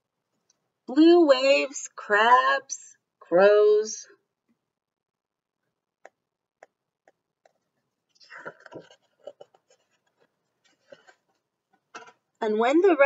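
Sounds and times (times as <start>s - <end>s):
paper pages rustling: 8.7s - 11.5s.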